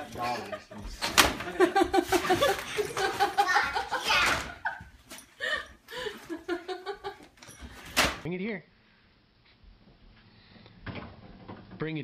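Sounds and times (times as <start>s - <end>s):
people laughing and giggling: 0.0s - 7.5s.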